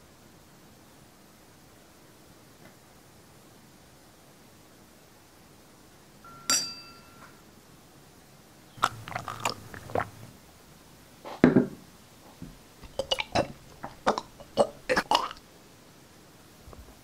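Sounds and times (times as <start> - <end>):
glass clinking: 6.3 - 7.3
eating mouth sounds: 8.8 - 10.4, 12.8 - 15.4.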